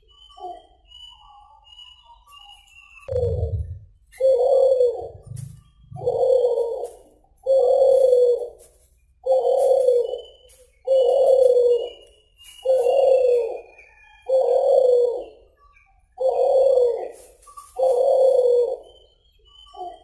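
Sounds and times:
dove cooing: 0:03.1 - 0:08.6, 0:09.2 - 0:12.0, 0:12.6 - 0:15.4, 0:16.2 - 0:19.0.

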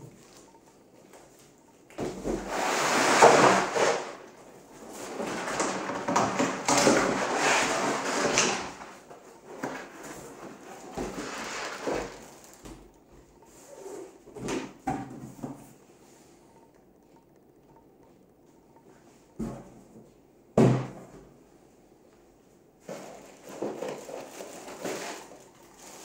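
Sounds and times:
cardboard and plastic rustling: 0:00.0 - 0:15.8, 0:22.8 - 0:26.0.

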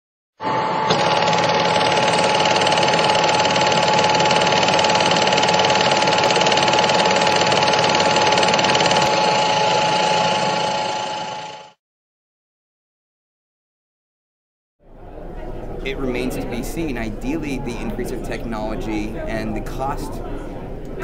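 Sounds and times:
machine running with steady whine: 0:00.4 - 0:11.8.

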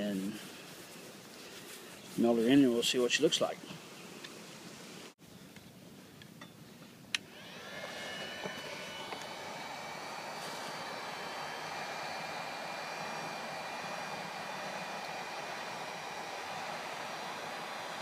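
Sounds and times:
heat gun fan blowing: 0:07.1 - 0:18.0.

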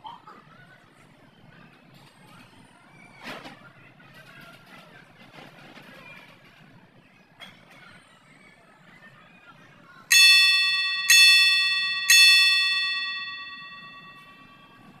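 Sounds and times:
bell-like countdown dings: 0:10.1 - 0:15.0.

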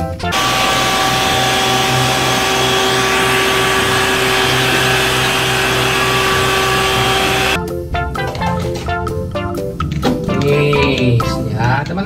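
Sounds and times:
mechanical hum and whine: 0:00.3 - 0:07.6.

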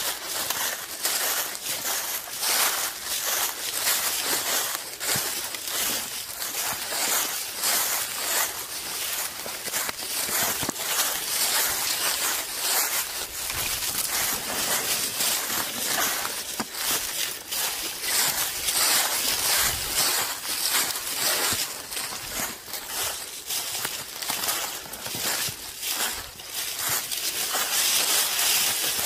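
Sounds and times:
footsteps on dry leaves: 0:00.0 - 0:29.0.

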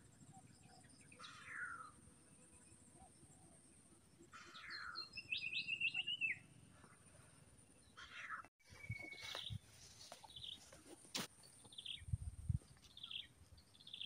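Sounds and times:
bird chirps: 0:04.3 - 0:07.0, 0:07.8 - 0:10.8, 0:11.4 - 0:14.0.

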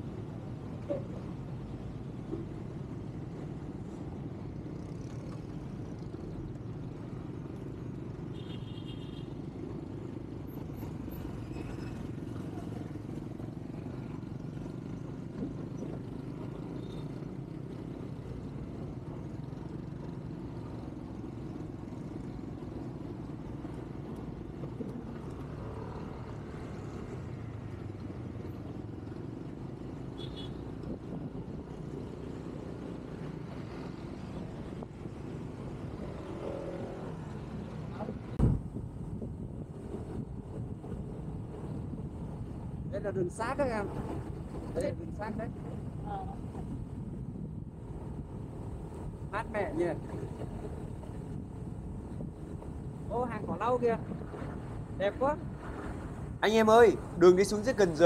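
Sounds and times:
engine and tyre drone: 0:10.5 - 0:42.8.

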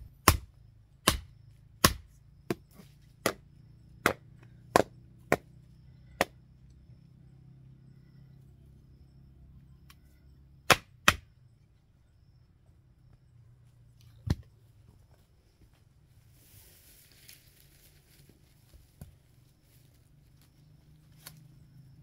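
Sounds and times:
soft rustle: 0:14.8 - 0:21.4.

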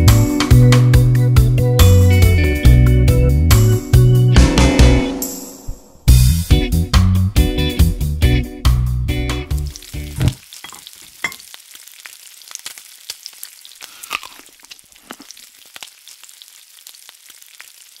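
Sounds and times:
guitar background music: 0:00.0 - 0:05.4, 0:06.1 - 0:10.4
food frying in a pan: 0:09.5 - 0:18.0.

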